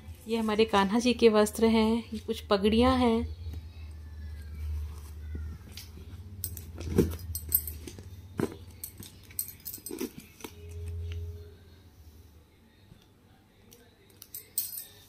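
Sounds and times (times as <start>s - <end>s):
handling knocks and clicks: 5.7s - 10.5s.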